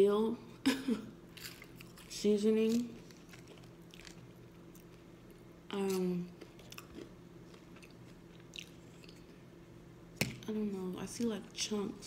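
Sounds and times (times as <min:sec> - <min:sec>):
soft chewing: 0:01.3 - 0:09.6.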